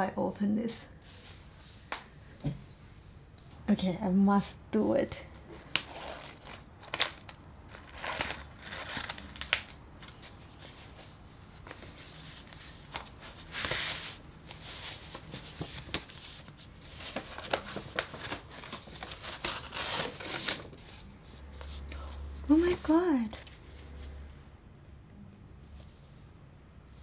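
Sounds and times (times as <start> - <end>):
paper envelope rustling: 5.6 - 21.8.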